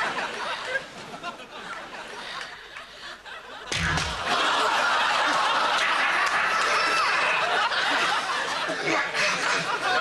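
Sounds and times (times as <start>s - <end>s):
studio audience laughing: 0.0s - 10.0s
sudden bang: 3.7s - 4.4s.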